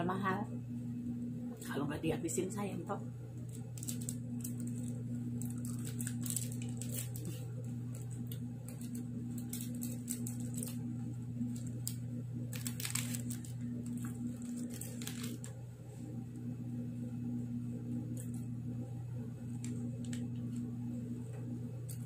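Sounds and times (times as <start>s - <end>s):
steady low hum: 0.0s - 22.0s
plastic wrapper crinkling: 3.4s - 15.6s, 19.5s - 20.7s.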